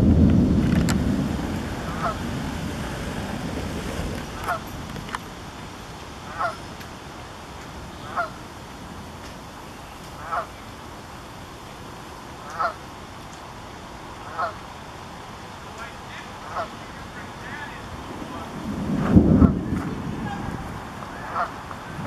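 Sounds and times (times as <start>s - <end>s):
low rumble: 0.0s - 5.2s, 17.9s - 22.0s
water: 0.0s - 22.0s
wind: 0.0s - 22.0s
goose honking: 1.8s - 2.3s, 4.4s - 4.7s, 6.3s - 6.6s, 8.0s - 8.4s, 10.2s - 10.5s, 12.4s - 12.8s, 14.2s - 14.6s, 16.4s - 16.9s, 20.2s - 21.6s.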